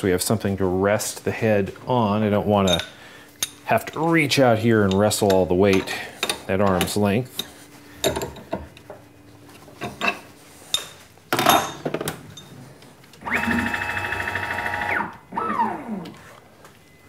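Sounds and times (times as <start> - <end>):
motor whine: 13.2 - 16.3.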